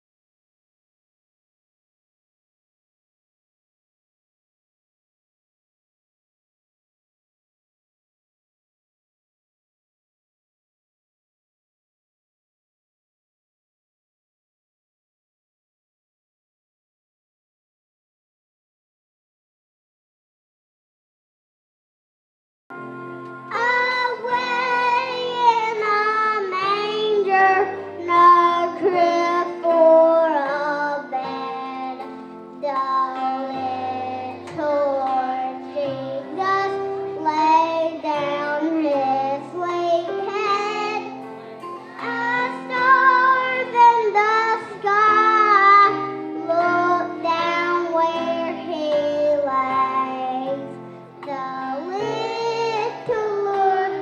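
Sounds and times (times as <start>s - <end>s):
instrumental accompaniment: 22.7s - 54.0s
children singing: 23.5s - 54.0s.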